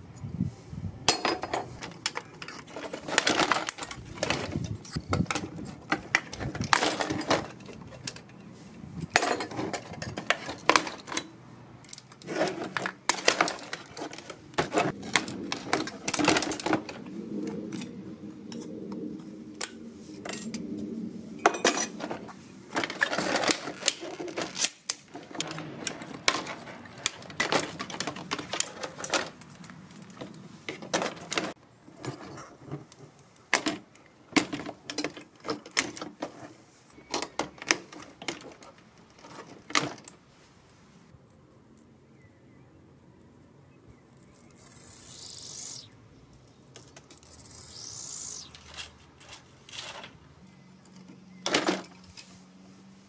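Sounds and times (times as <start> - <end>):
parts rattling in plastic tub: 1.1 - 8.4, 9.0 - 11.3, 11.9 - 17.0, 21.4 - 32.8, 51.4 - 52.0.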